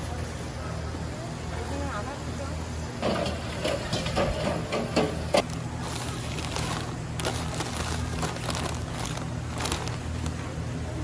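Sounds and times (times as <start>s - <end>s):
dried noodles rustling: 5.4s - 10.5s.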